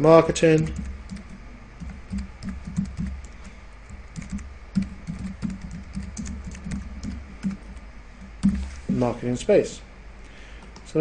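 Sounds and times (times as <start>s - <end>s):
computer keyboard typing: 0.4s - 8.8s.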